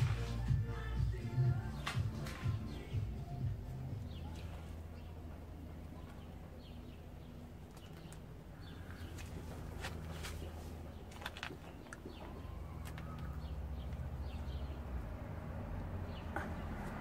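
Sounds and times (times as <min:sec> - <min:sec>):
steady low hum: 0:00.0 - 0:12.7
birds chirping: 0:00.0 - 0:17.0.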